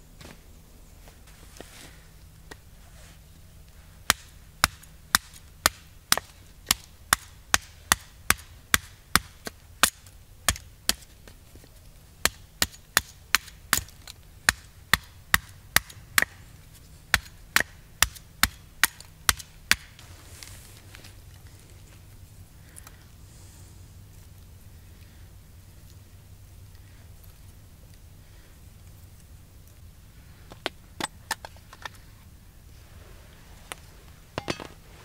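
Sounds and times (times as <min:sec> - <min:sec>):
hatchet chopping kindling: 0:04.0 - 0:11.1, 0:12.2 - 0:16.4, 0:17.1 - 0:20.0.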